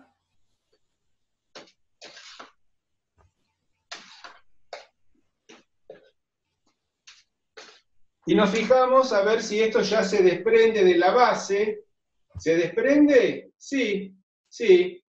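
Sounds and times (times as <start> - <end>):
wooden spoon scraping a pan: 2.0 - 2.6, 3.9 - 4.5.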